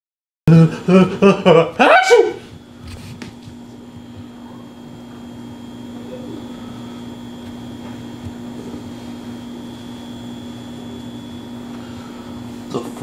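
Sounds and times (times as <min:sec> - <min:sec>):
steady low hum: 0:00.5 - 0:13.0
faint high whine: 0:03.7 - 0:13.0.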